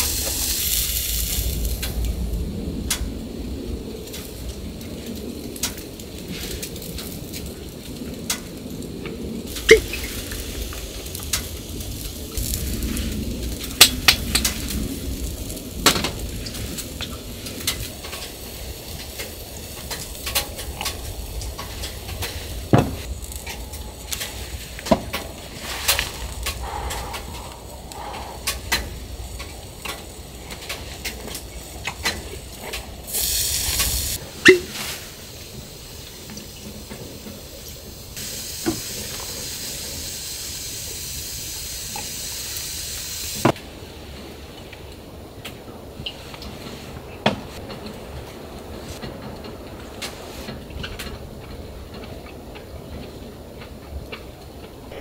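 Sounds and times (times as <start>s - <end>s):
gas hissing: 0.0s - 43.6s
camp heater rumbling: 0.0s - 55.0s.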